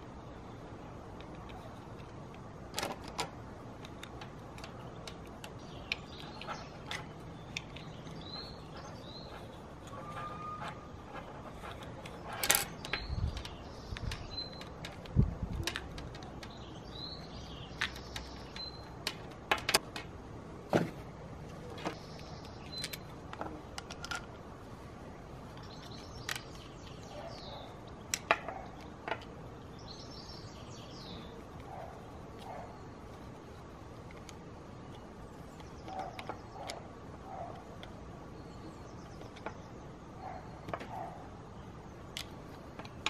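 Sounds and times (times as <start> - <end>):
small birds chirping: 0.0 - 19.9, 21.0 - 43.0.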